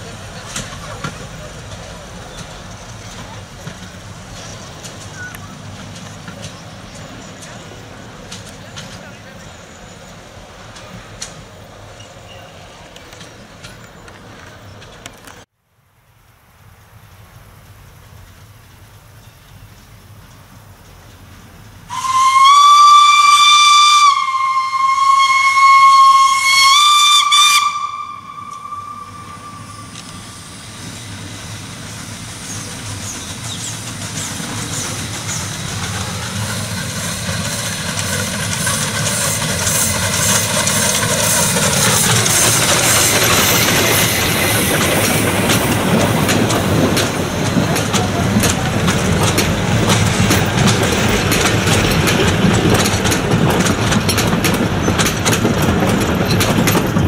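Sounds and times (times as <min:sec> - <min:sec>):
train wheels rumbling and clattering: 0:00.0 - 0:15.5, 0:17.2 - 0:57.0
steam whistle blast: 0:21.9 - 0:30.7.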